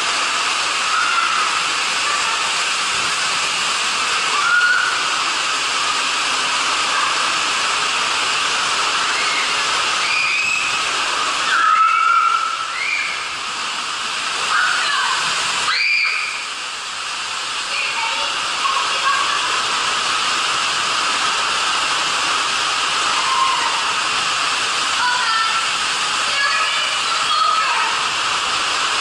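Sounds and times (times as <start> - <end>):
water rushing down a slide: 0.0 - 29.0
high squeals: 4.3 - 5.1, 9.0 - 10.8, 11.4 - 13.4.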